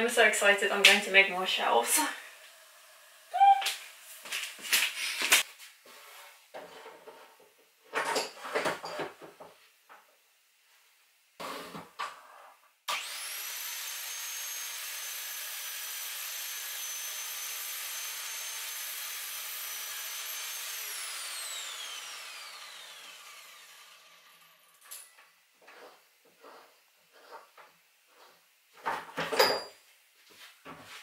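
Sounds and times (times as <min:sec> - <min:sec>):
electric mitre saw whining: 0:12.9 - 0:25.3.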